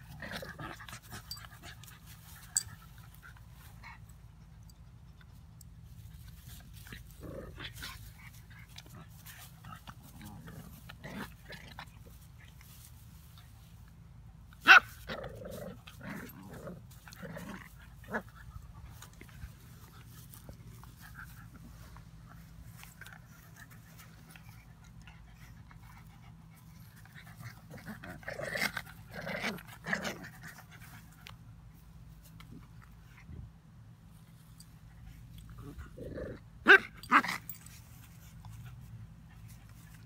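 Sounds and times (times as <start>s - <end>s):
puppies growling and yipping: 0.0s - 3.8s, 14.7s - 31.2s.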